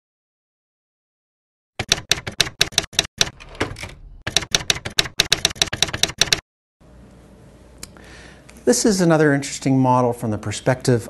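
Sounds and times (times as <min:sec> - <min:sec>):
typewriter keys striking: 0:01.8 - 0:06.4.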